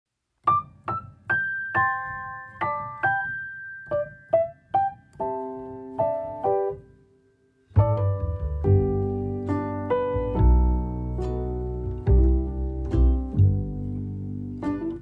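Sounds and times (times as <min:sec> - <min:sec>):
gentle piano music: 0:00.4 - 0:15.0.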